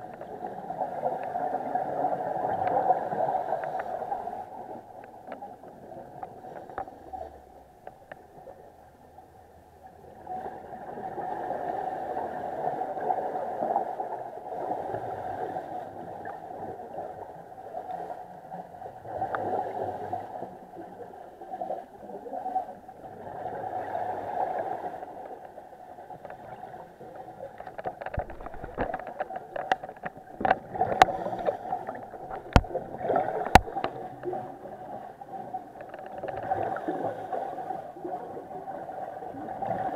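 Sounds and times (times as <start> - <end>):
bubbles gurgling: 26.3 - 39.9
sharp clicks and knocks: 27.5 - 34.4, 35.8 - 36.5.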